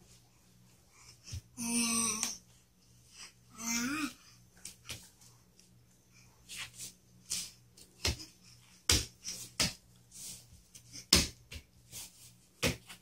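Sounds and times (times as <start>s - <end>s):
soft brushing sounds: 4.5s - 13.0s
baby's hands slapping foam mat: 6.5s - 13.0s.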